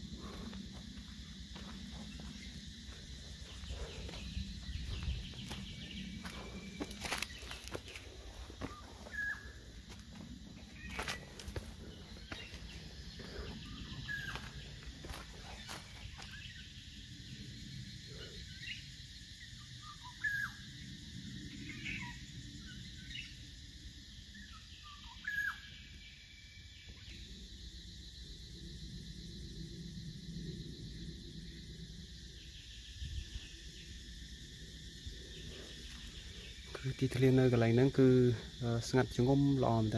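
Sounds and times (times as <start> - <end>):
high insect hum: 0.0 - 39.9
birds chirping: 0.2 - 17.1.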